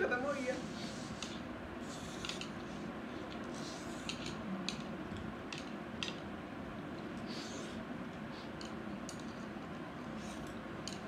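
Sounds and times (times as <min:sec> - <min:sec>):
chopsticks clicking and tapping plates: 0:03.3 - 0:06.2, 0:10.4 - 0:11.0.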